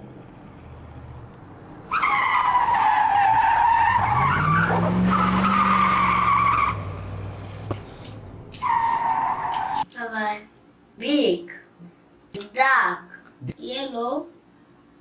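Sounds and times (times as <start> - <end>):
low engine rev: 0.0 - 2.6, 3.5 - 8.6
high tyre squeal tone: 1.9 - 7.0, 8.6 - 9.8.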